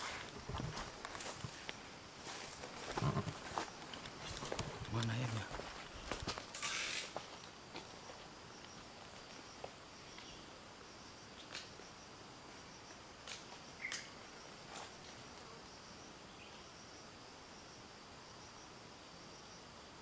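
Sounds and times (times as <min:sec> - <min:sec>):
high-pitched insect drone: 0:00.0 - 0:07.6.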